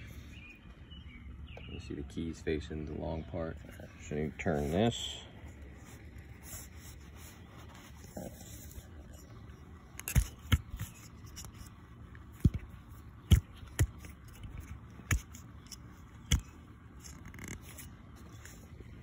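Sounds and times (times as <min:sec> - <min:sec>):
handling knocks and scrapes: 0:03.6 - 0:19.0.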